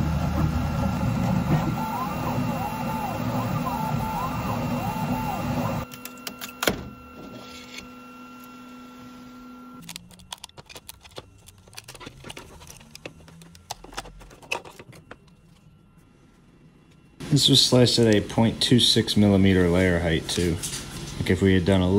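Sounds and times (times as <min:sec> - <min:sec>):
stepper motors whirring: 0:00.0 - 0:15.8
steady machine hum: 0:00.0 - 0:21.9.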